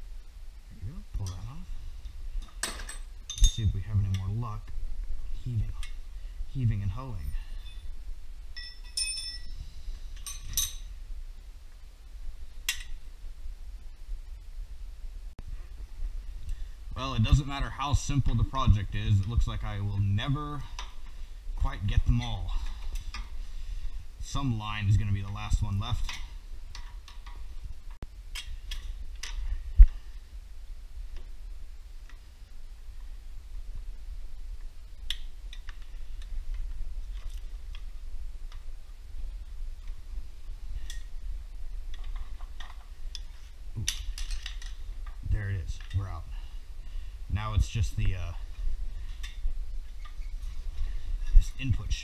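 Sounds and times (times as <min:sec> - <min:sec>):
low steady rumble: 0:00.0 - 0:52.0
metal clinking and ringing: 0:01.2 - 0:03.8, 0:07.2 - 0:11.0
metallic clicks of engine parts: 0:41.9 - 0:45.2.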